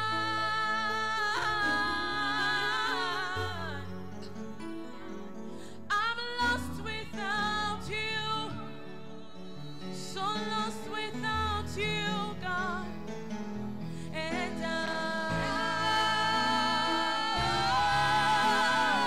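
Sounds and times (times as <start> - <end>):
woman singing gospel song: 0.0 - 3.9, 5.9 - 8.6, 14.2 - 19.0.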